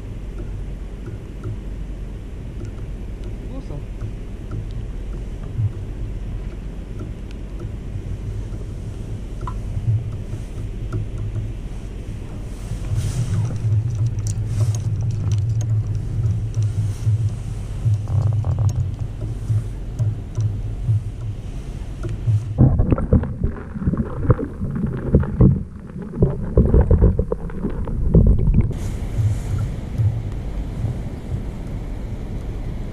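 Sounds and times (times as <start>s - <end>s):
muffled underwater sloshing and bubbling: 0.0s - 32.2s
wind rumble on microphone: 0.0s - 32.9s
faint small clicks: 2.6s - 3.4s, 4.0s - 7.8s, 12.8s - 21.4s, 22.0s - 22.5s
low underwater thumps and knocks: 2.6s - 31.5s.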